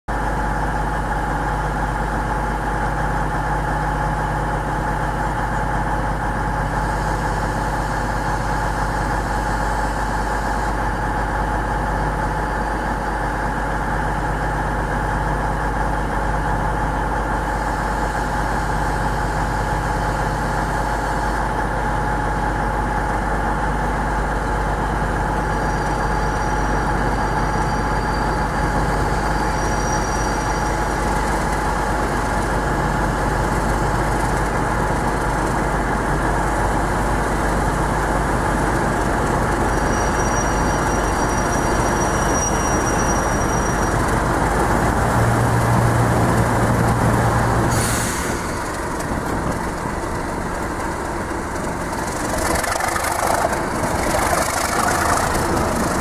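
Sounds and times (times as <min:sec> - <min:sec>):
diesel locomotive engine drone: 0:00.1 - 0:56.0
faint high squeals: 0:27.4 - 0:30.9, 0:39.7 - 0:44.1
high whine: 0:51.8 - 0:56.0.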